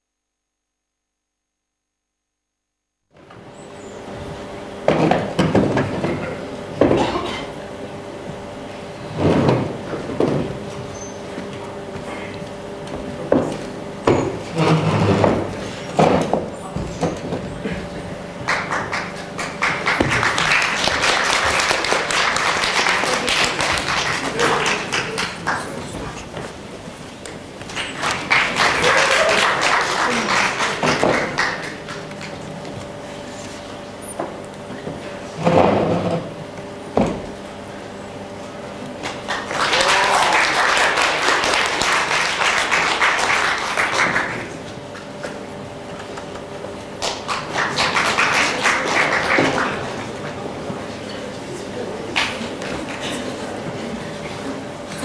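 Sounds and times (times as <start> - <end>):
audience applauding: 17.6 - 26.4, 27.6 - 32.8, 39.0 - 45.3, 46.9 - 50.6.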